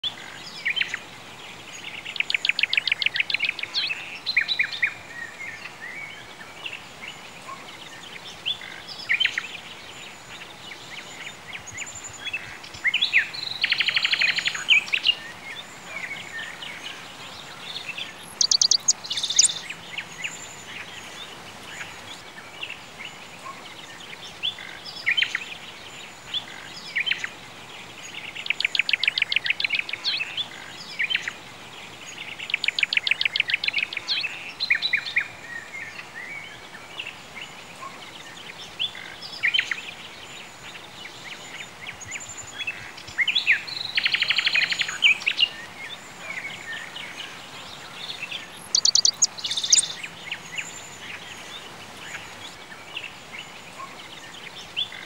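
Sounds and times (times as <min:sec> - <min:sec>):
birds chirping: 0:00.0 - 0:55.0
fast trilled birdsong: 0:08.1 - 0:21.3, 0:39.2 - 0:55.0
high quick bird trill: 0:18.4 - 0:19.6, 0:48.7 - 0:50.0.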